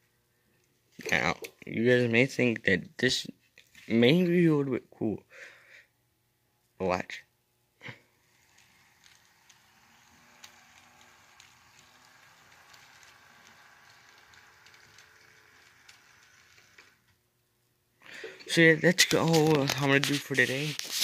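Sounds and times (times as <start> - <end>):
model train motor whir: 7.8 - 17.2
train wheels clicking: 8.2 - 17.0.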